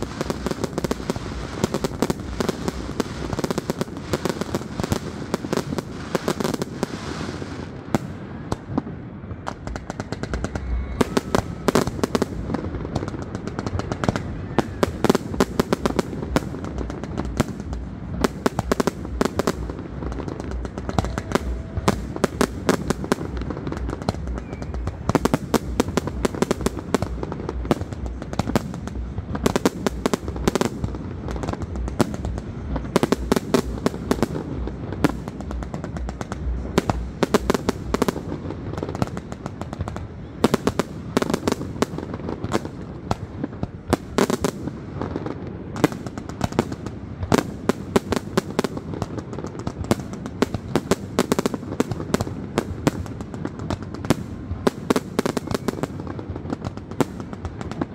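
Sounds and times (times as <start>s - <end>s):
fireworks bangs and crackles: 0.0s - 57.9s.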